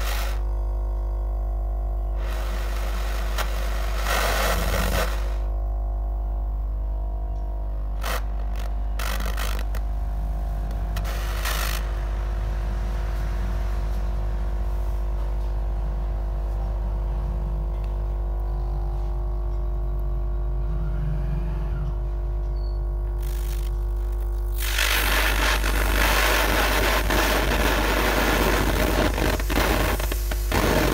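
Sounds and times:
gas torch burning: 0.0 - 0.5, 2.0 - 5.7, 7.7 - 18.0, 23.2 - 30.9
loud noisy sound: 0.0 - 0.5, 2.1 - 6.4, 7.7 - 18.2, 23.1 - 30.9
low hum with fixed tones: 0.0 - 30.9.

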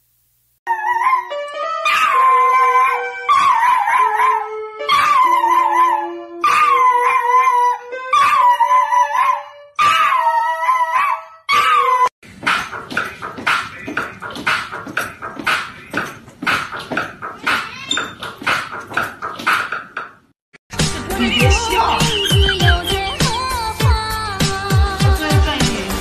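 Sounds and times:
dog howling: 0.7 - 12.1.

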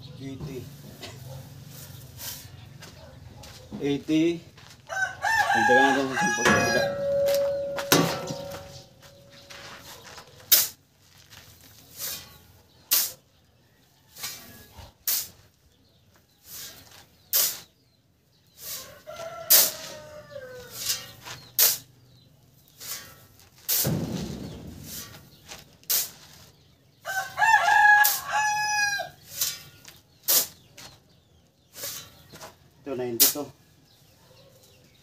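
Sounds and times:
shovel scraping into sand: 0.6 - 2.7, 5.6 - 13.2, 14.1 - 15.6, 16.4 - 17.8, 18.6 - 20.1, 20.7 - 21.9, 22.6 - 26.6, 29.2 - 31.0, 31.7 - 32.5
rooster crowing: 4.8 - 8.8, 19.0 - 20.8, 27.0 - 29.2.

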